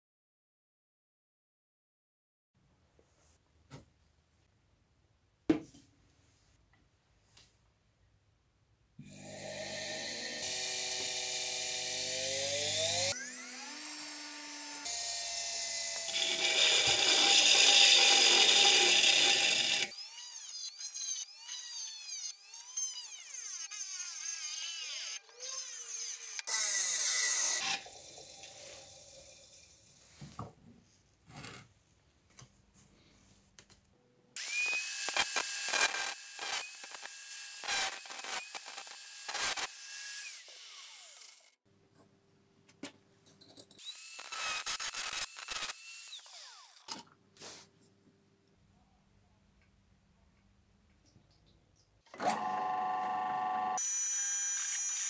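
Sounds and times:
power tool whining: 9.0 - 29.8, 34.4 - 41.6, 43.8 - 47.0, 52.1 - 55.0.

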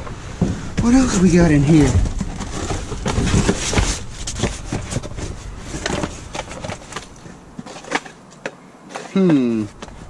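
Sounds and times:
paper and cardboard rustling: 0.8 - 8.2
knocks and thumps: 1.8 - 7.0.

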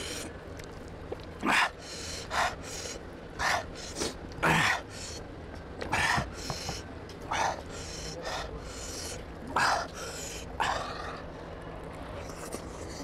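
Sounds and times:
man breathing sharply: 1.7 - 5.2, 6.0 - 11.1.

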